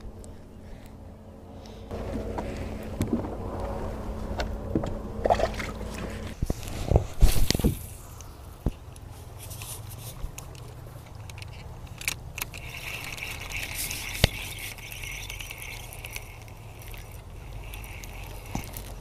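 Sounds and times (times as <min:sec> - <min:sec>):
low steady rumble: 0:00.0 - 0:19.0
fishing reel whirring: 0:11.2 - 0:19.0.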